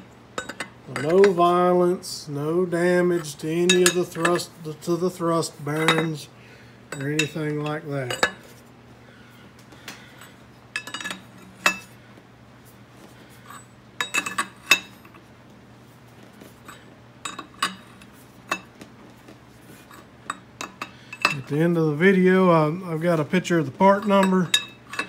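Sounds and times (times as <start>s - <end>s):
faint steady hum: 0.0s - 25.0s
wrench clinking on metal: 0.4s - 1.4s, 3.2s - 4.5s, 5.7s - 6.2s, 6.9s - 8.5s, 10.2s - 11.9s, 13.5s - 15.0s, 16.7s - 18.7s, 19.9s - 21.6s, 23.8s - 25.0s.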